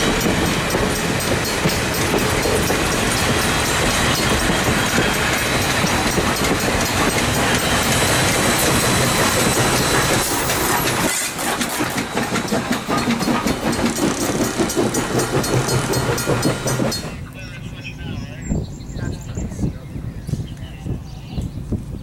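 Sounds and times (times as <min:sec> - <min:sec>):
steam hissing: 0:00.0 - 0:17.3
crossing bell ringing: 0:00.0 - 0:17.4
train wheels clicking over rail joints: 0:00.0 - 0:17.4.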